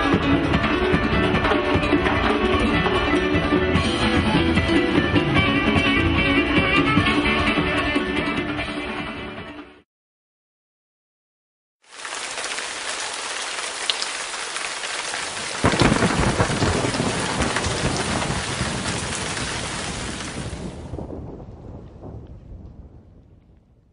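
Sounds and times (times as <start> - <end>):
rain pouring: 11.8 - 23.4
thunder rumbling: 15.2 - 23.9.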